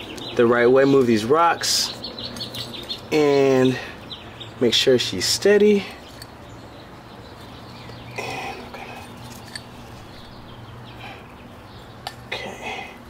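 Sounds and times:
steady low hum: 5.4s - 13.0s.

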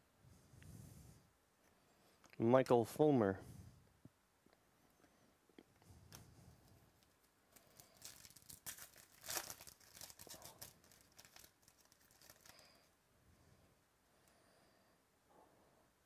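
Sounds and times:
foil wrapper tearing and crinkling: 7.0s - 12.9s.

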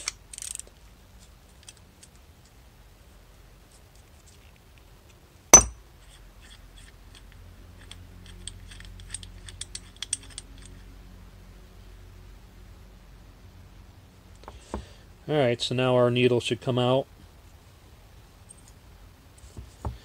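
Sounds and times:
sharp metallic tap: 5.6s - 5.8s.

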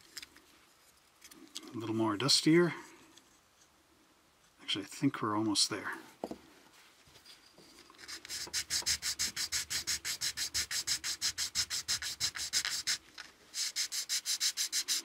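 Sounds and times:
sandpaper rasping: 8.0s - 15.0s.

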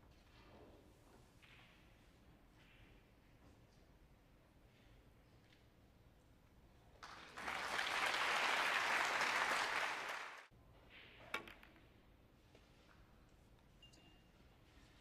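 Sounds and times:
audience applauding: 7.0s - 10.5s.

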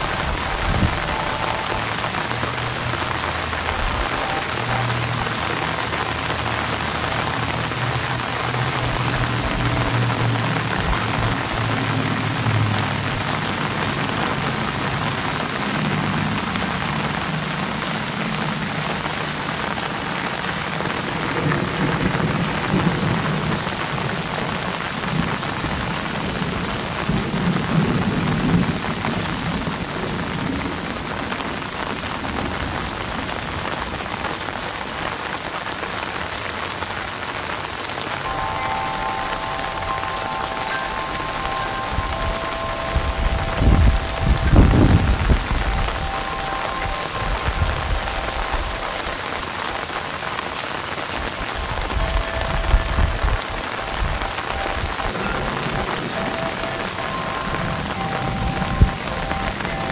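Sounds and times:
steady rain on leaves: 0.0s - 59.9s
low thunder rumbling: 42.4s - 48.6s.

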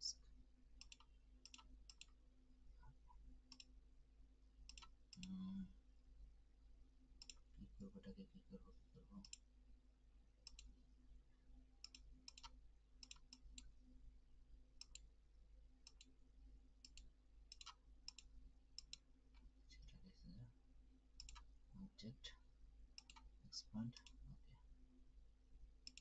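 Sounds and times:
low electrical hum: 0.0s - 26.0s
computer mouse clicks: 0.8s - 2.2s, 3.5s - 3.8s, 4.7s - 5.4s, 7.2s - 7.5s, 9.2s - 9.5s, 10.4s - 10.7s, 11.8s - 13.7s, 14.8s - 15.1s, 15.8s - 16.2s, 16.8s - 19.5s, 21.2s - 21.5s, 23.0s - 23.3s.

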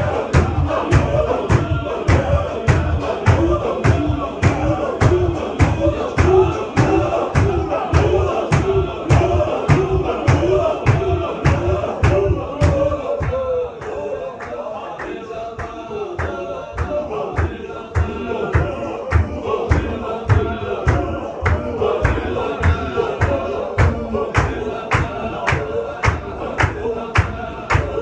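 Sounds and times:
men chanting together: 0.0s - 28.0s
sharp hand claps: 20.9s - 28.0s.

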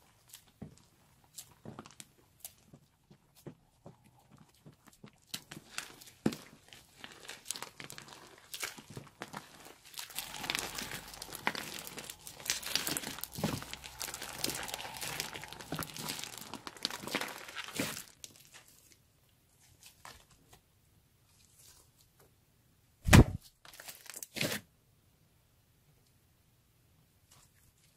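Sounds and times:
slime crackling and squelching: 0.0s - 20.3s.

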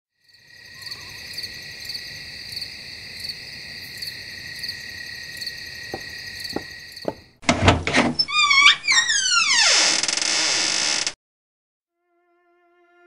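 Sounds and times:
crickets chirring: 0.2s - 7.3s
soft knocks: 5.9s - 7.3s.

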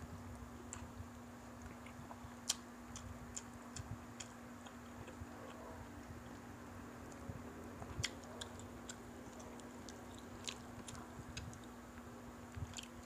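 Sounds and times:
low steady hum: 0.0s - 13.0s
people chewing: 8.0s - 11.8s, 12.6s - 13.0s.

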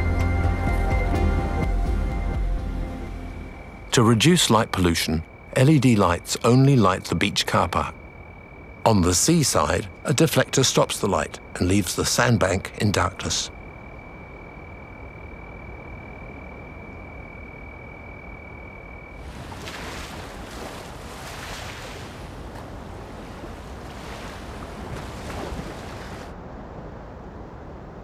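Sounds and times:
low background hiss: 3.1s - 28.0s
ocean waves washing in: 19.1s - 27.6s.

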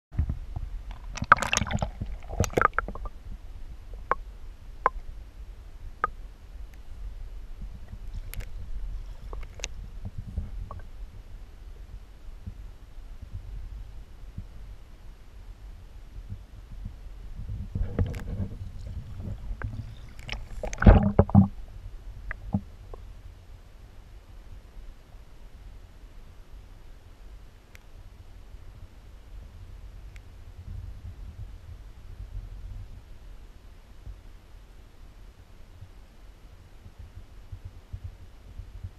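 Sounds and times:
underwater knocks and clicks: 0.2s - 3.2s, 17.5s - 21.6s, 22.3s - 23.0s
muffled underwater rumble: 0.2s - 27.4s, 28.3s - 38.9s
water splashing and gurgling: 0.9s - 3.2s, 17.8s - 21.6s.

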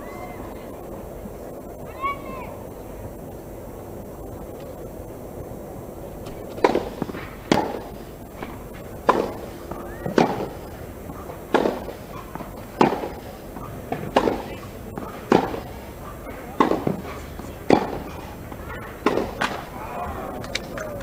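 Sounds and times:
tennis balls struck by rackets: 6.2s - 21.0s.

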